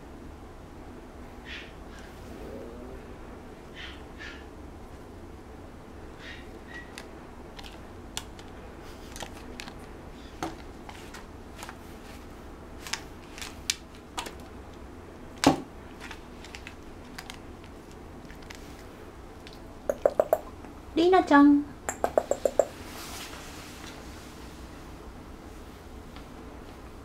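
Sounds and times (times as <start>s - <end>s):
puppy taps on table: 21.9s - 22.7s.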